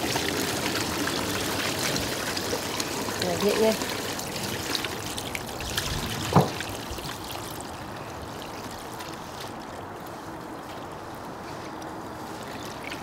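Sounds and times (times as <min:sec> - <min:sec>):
thump: 0:06.3 - 0:06.6.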